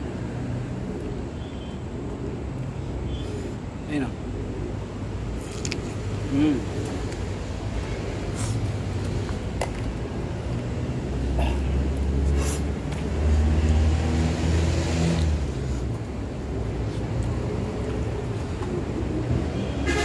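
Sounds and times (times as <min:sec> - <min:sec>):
vehicle engine rumble passing: 0:04.3 - 0:20.0.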